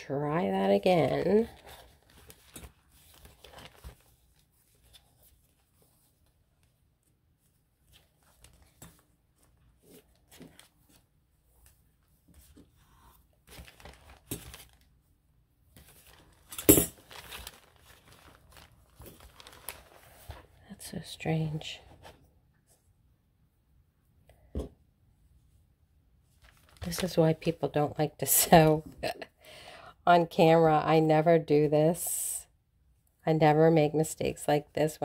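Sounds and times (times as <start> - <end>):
paper and thread rustling: 0.9 - 15.0, 15.7 - 20.6, 26.3 - 27.4.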